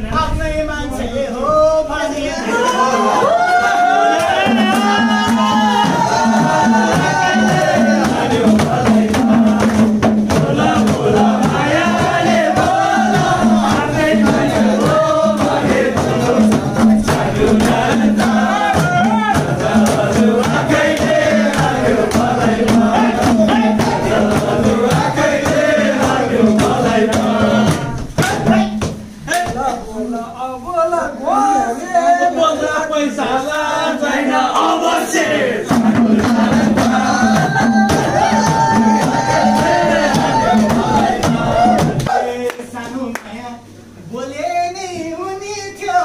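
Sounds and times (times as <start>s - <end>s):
music with singing and beat: 3.4s - 29.7s, 35.6s - 42.2s.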